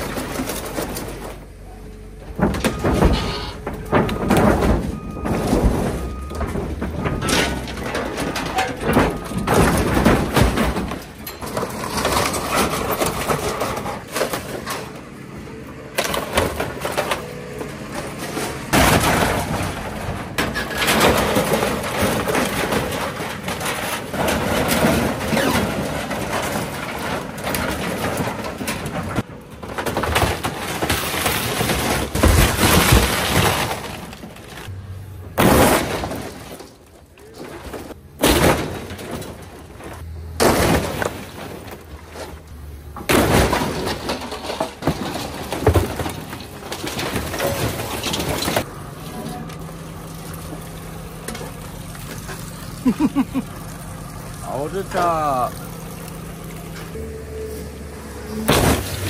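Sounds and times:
glass and plastic breaking: 0.0s - 1.4s, 2.2s - 15.0s, 15.9s - 53.6s, 58.4s - 59.0s
heavy crashes: 2.3s - 15.0s, 17.9s - 49.4s, 58.2s - 59.0s
sheet metal crunching and tearing: 2.4s - 15.0s, 17.9s - 34.7s, 35.4s - 49.7s, 58.5s - 59.0s.

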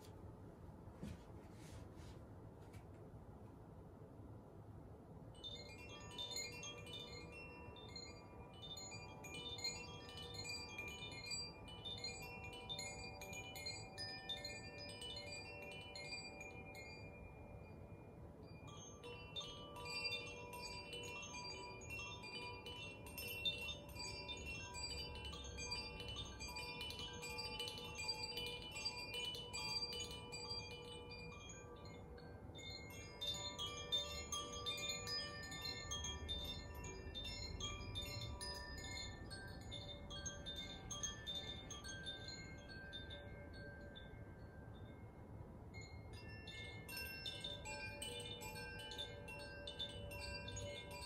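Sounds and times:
wind chime ringing: 5.4s - 51.0s.

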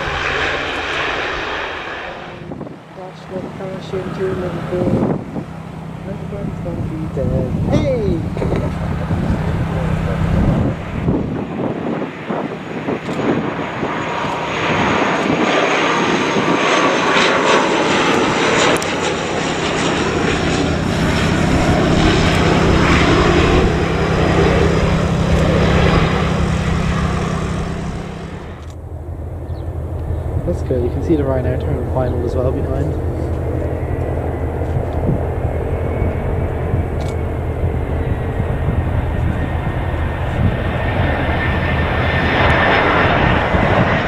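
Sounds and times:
high whine falling in pitch: 0.0s - 11.4s
aircraft engine noise: 0.0s - 44.0s
propeller drone: 0.0s - 44.0s.

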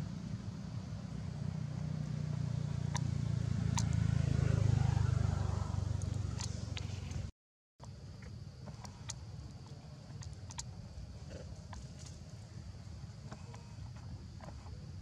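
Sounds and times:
motor vehicle passing: 0.0s - 7.3s.

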